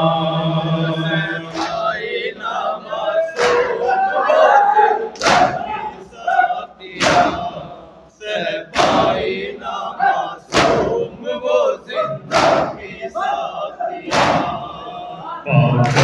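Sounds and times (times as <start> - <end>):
men chanting a lament: 0.0 - 16.0
chest slaps in unison: 1.5 - 1.9, 3.4 - 3.8, 5.2 - 5.7, 7.0 - 7.5, 8.7 - 9.2, 10.5 - 11.0, 12.2 - 12.8, 14.1 - 14.7, 15.6 - 16.0.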